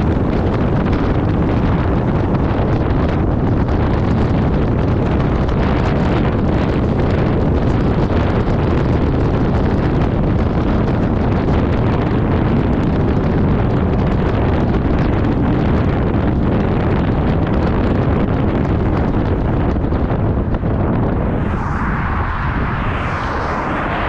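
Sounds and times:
wind rumble on microphone: 0.0 - 24.0
highway road noise: 19.1 - 24.0.

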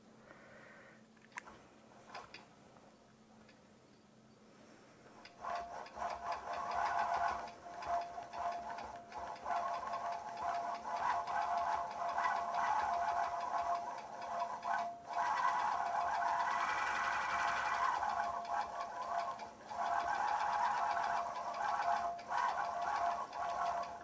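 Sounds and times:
quilting machine stitching: 5.3 - 24.0.

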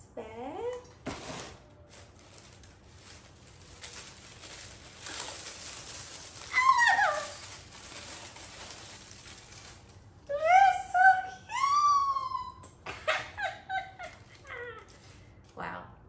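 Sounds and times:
tissue paper rustling: 1.1 - 12.4, 13.2 - 15.3.

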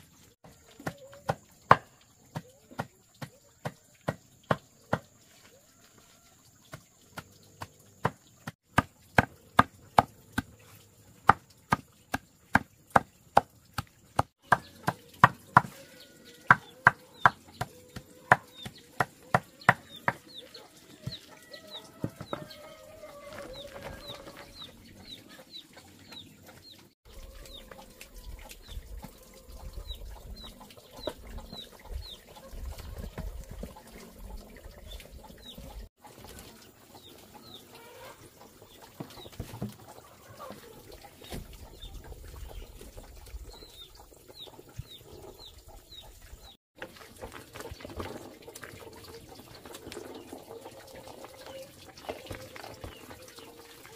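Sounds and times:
chickens clucking: 0.5 - 8.4, 14.2 - 53.9
chicks peeping: 14.4 - 33.4.

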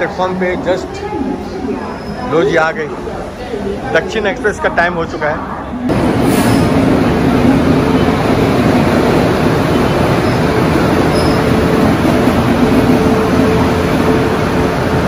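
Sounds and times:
train rumbling on rails: 5.7 - 15.0.

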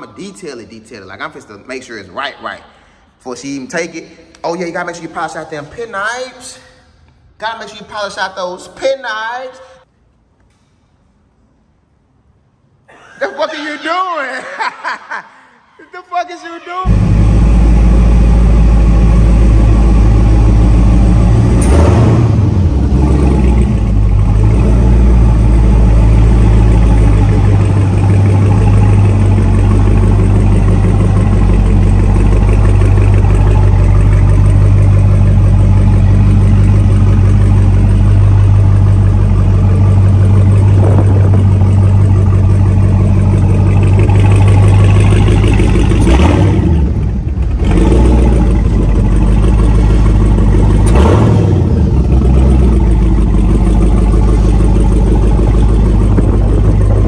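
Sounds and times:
car engine idling loudly: 16.9 - 57.0.

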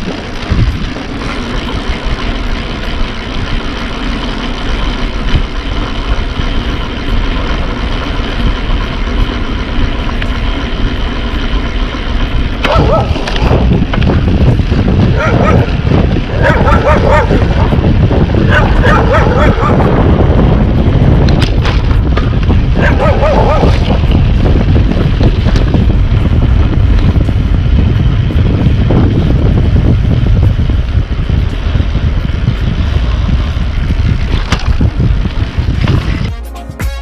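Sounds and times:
wind buffeting microphone: 0.0 - 36.3
road rumble: 0.0 - 36.8
dog barking: 12.6 - 13.2, 15.1 - 15.7, 16.3 - 17.4, 18.5 - 19.9, 22.8 - 23.8.

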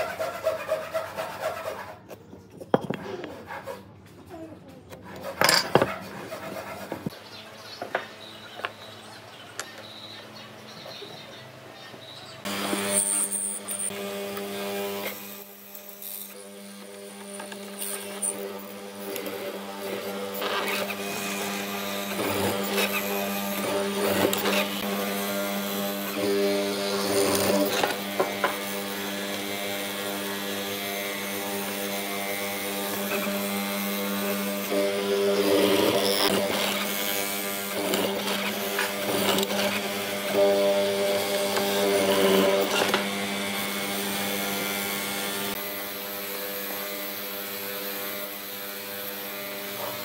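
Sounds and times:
mortiser cutting wood: 12.5 - 50.0.

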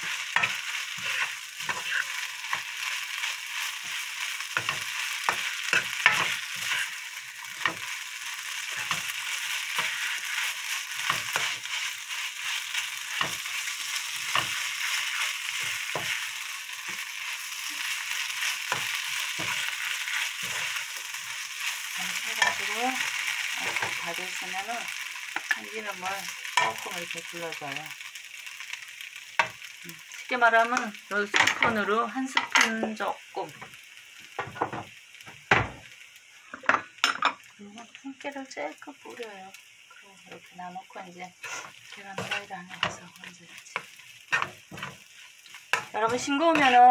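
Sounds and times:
spatula scraping a pan: 0.0 - 24.6, 41.4 - 46.9
fried rice sizzling in a pan: 0.0 - 46.9.

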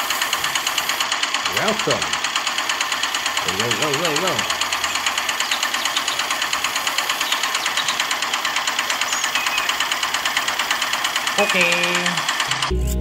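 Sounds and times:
small engine chugging: 0.0 - 12.8.

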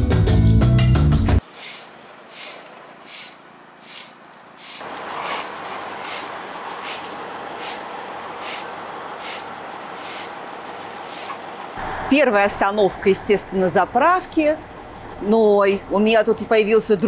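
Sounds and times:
broom sweeping pavement: 1.4 - 11.7
steady background noise: 1.4 - 17.0.

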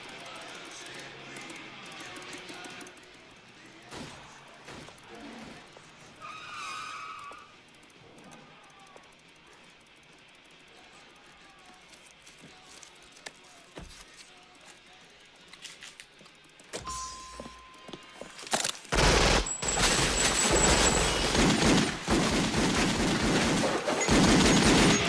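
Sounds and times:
faint clicks: 0.0 - 3.8
rapid gunfire: 3.7 - 5.7, 18.9 - 25.0
short steady tone: 16.8 - 18.2
shelving being shot apart: 18.5 - 25.0.

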